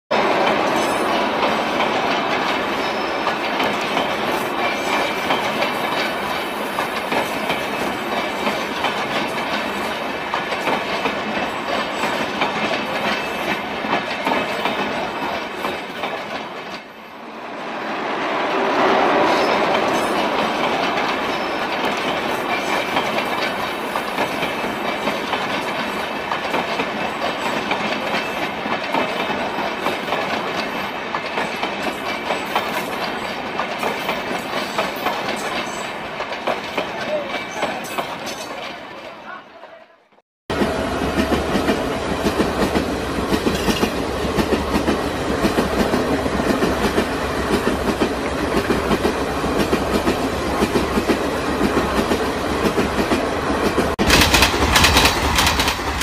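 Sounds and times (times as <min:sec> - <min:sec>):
train rumble: 0:00.1 - 0:38.9, 0:40.5 - 0:56.0
train wheels clacking over rail joints: 0:00.2 - 0:16.9, 0:19.4 - 0:38.8, 0:40.5 - 0:56.0.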